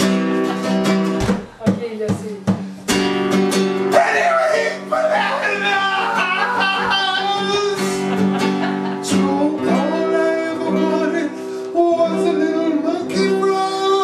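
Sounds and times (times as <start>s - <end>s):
guitar accompaniment: 0.0s - 14.0s
man singing: 3.9s - 8.2s, 9.0s - 14.0s.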